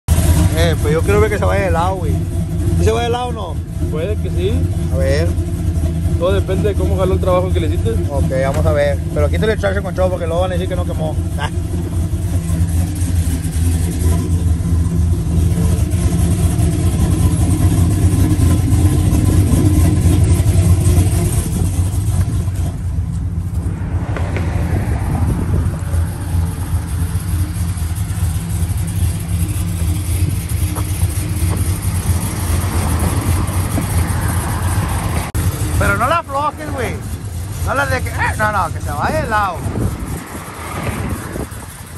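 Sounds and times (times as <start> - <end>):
truck engine running: 0.0 - 41.9.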